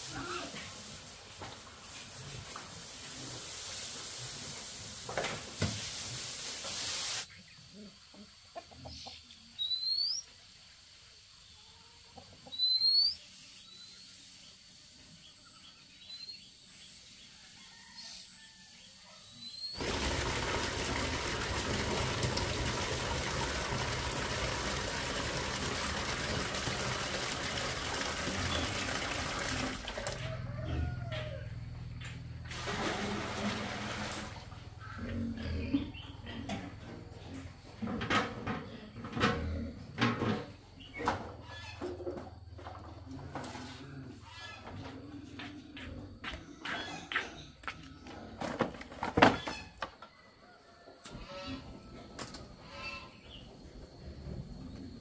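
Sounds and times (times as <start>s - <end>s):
hose spraying water: 0.0s - 7.3s, 19.8s - 30.3s, 32.5s - 34.6s
bird chirps: 8.9s - 10.3s, 12.5s - 14.2s.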